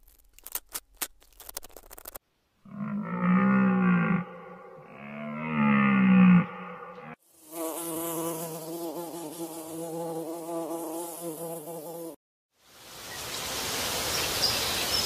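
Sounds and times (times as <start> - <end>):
cow mooing: 2.7 - 7.2
honeybee buzzing: 7.2 - 12.2.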